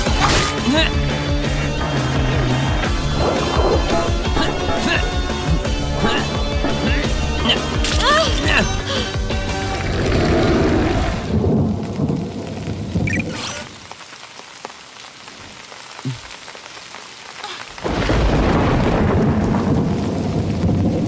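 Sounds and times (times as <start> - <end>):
rain hiss: 0.0 - 21.0
thunder rumbling and cracking: 1.5 - 7.4, 9.6 - 14.1, 17.8 - 21.0.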